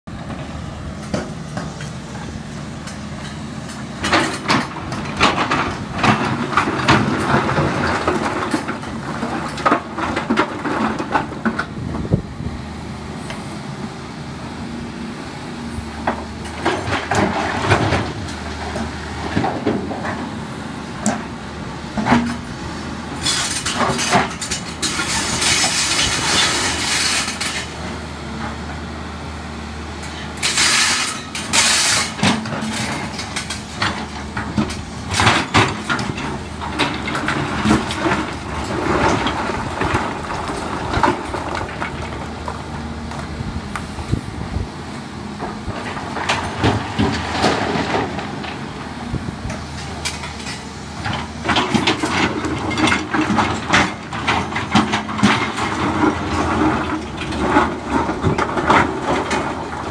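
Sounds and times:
excavator diesel engine running: 0.1s - 59.9s
rocks clattering against steel bucket: 49.8s - 59.9s.

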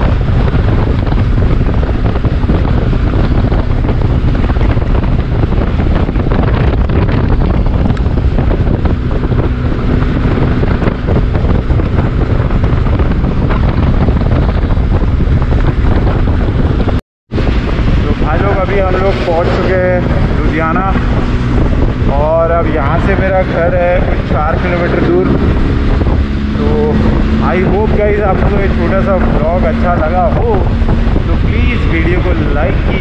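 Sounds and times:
motorcycle engine humming: 0.0s - 33.0s
wind buffeting microphone: 0.0s - 33.0s.

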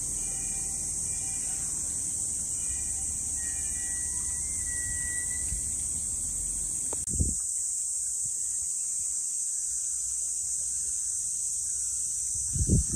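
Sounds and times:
cicada chorus drone: 0.0s - 12.9s.

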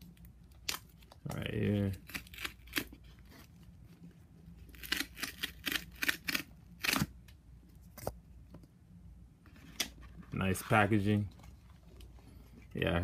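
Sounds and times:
cardboard tear strip ripping: 1.8s - 3.0s, 4.7s - 7.1s.

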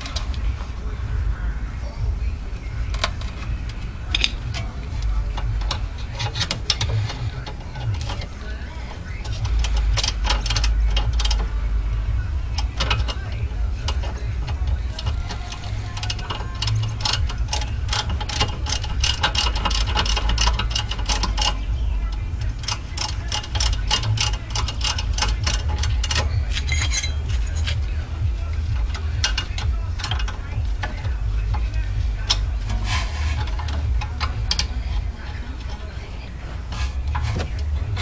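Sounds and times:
low rumble: 0.0s - 23.0s
wrench clicking against metal: 2.9s - 8.3s, 9.2s - 11.6s, 12.5s - 21.7s, 22.4s - 35.8s.

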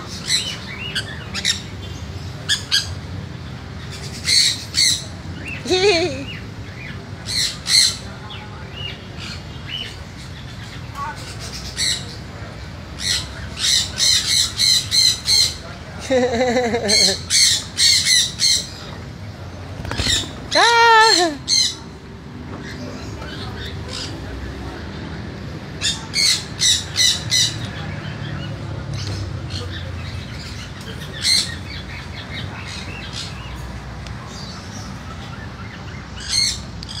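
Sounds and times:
low background noise: 0.0s - 37.0s
parrots squawking: 12.9s - 15.6s, 16.4s - 18.9s, 19.9s - 22.0s, 35.6s - 37.0s.

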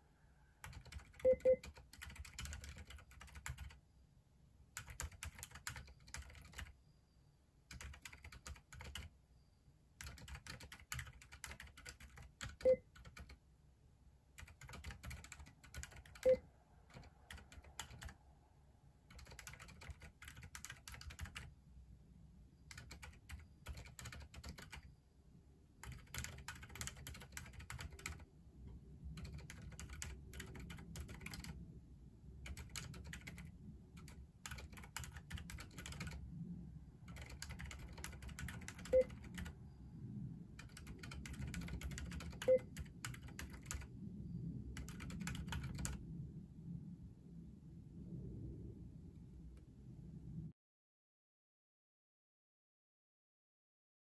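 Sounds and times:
soft keyboard keystrokes: 0.6s - 3.8s, 4.8s - 6.7s, 7.7s - 9.1s, 10.0s - 13.4s, 14.4s - 18.2s, 19.1s - 21.5s, 22.7s - 24.9s, 25.8s - 28.2s, 29.2s - 31.6s, 32.4s - 36.2s, 37.1s - 39.6s, 40.6s - 43.9s, 44.8s - 46.0s.

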